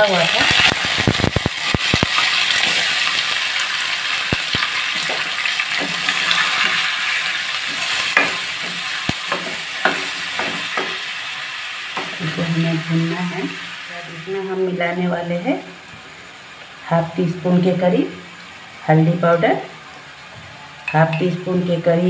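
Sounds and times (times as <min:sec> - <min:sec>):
paste sizzling in hot oil: 0:00.0 - 0:14.6
spatula knocking on pan: 0:07.7 - 0:11.1.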